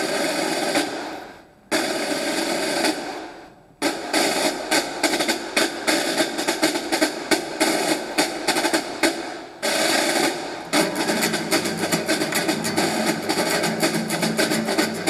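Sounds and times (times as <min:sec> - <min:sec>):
rapid sharp cracks: 0:00.0 - 0:15.0
loud music: 0:03.9 - 0:15.0.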